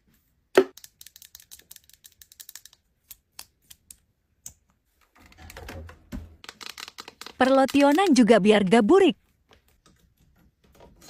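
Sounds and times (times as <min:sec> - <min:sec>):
plastic tubes clicking and rattling: 0:00.6 - 0:08.3.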